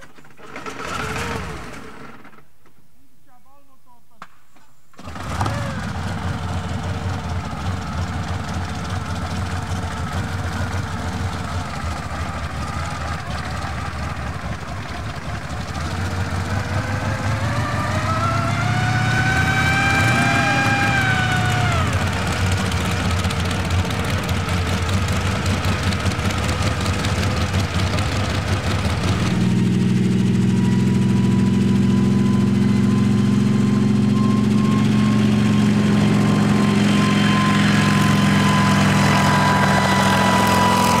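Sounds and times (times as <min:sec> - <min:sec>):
helicopter piston engines running: 0:05.0 - 0:41.0
rising and falling whine: 0:15.6 - 0:24.6, 0:25.3 - 0:41.0.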